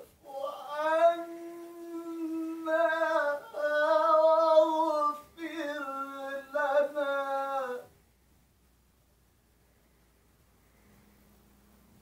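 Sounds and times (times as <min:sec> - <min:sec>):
man chanting melodically: 0:00.0 - 0:07.9.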